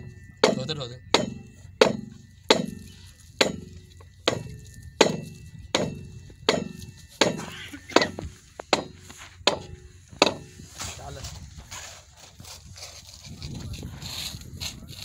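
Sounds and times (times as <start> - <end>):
sharp ringing knocks: 0.0 - 10.8.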